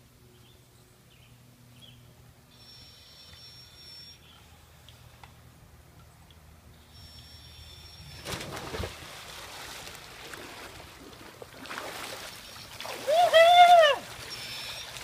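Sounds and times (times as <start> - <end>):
big splash into pool: 8.2 - 10.8
water sloshing and churning: 8.2 - 15.0.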